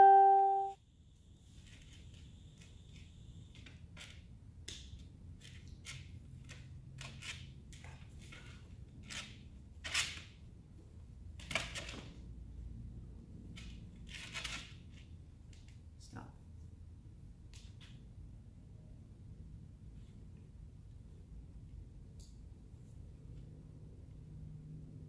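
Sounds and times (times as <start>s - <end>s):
bell-like chime: 0.0s - 0.8s.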